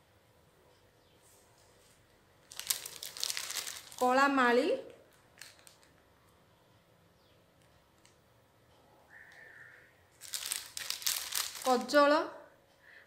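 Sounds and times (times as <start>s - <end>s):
plastic packet clicks and rustles: 2.4s - 4.2s, 5.1s - 6.1s, 10.1s - 12.0s
plastic packet crinkling: 2.4s - 4.3s, 5.1s - 6.0s, 10.1s - 12.0s.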